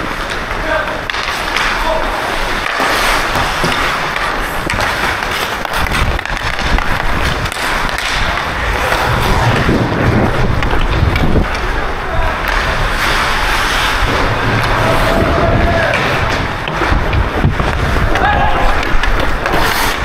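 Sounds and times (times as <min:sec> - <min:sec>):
hockey stick tapping puck: 0:00.0 - 0:20.0
skate blades scraping ice: 0:00.0 - 0:20.0
low rumble: 0:06.7 - 0:19.2.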